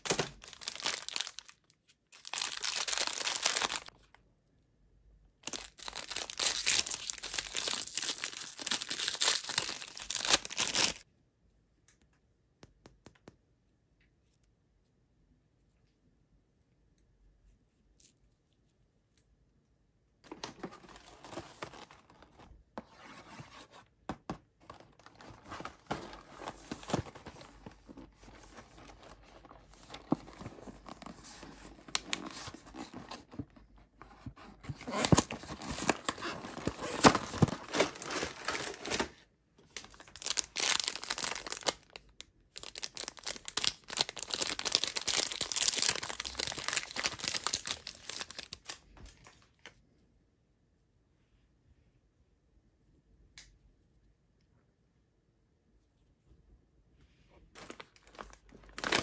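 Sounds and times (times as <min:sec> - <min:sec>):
wrappers crinkling and tearing: 0:00.0 - 0:03.9, 0:05.4 - 0:11.0, 0:34.7 - 0:39.2, 0:39.8 - 0:49.3, 0:57.6 - 0:59.0.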